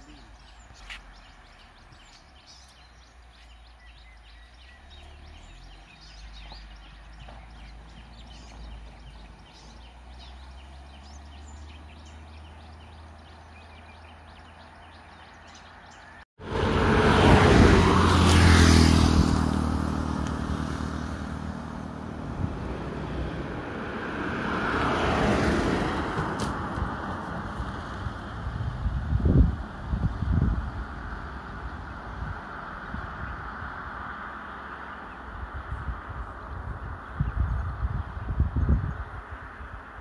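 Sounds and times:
vehicle engine running loud: 0:16.4 - 0:24.9.

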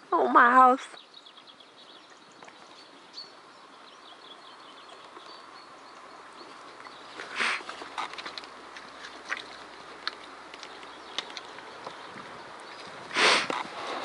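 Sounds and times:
faint birdsong: 0:00.0 - 0:14.0
pony mouthing and cropping clicks: 0:04.8 - 0:14.0.

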